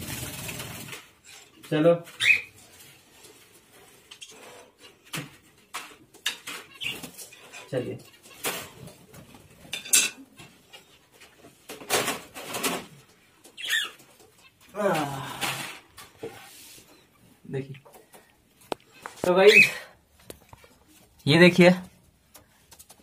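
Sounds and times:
birds chirping and calling: 2.1s - 2.8s, 5.7s - 11.0s, 12.7s - 14.7s, 18.9s - 20.0s.

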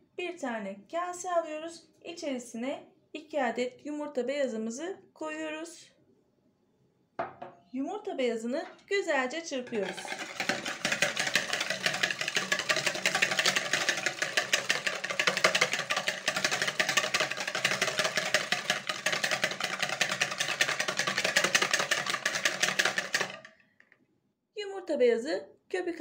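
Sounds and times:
whisk beating egg whites in bowl: 9.6s - 23.5s.

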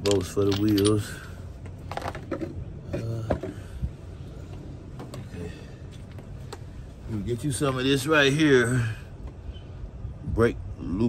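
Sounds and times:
tools clicking and knocking: 0.0s - 1.1s.

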